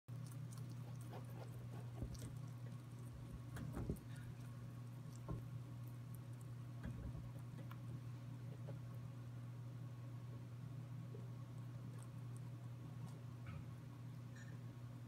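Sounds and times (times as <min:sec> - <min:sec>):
rabbit chewing greens: 0:00.1 - 0:09.5, 0:10.3 - 0:14.6
steady low hum: 0:00.1 - 0:15.0.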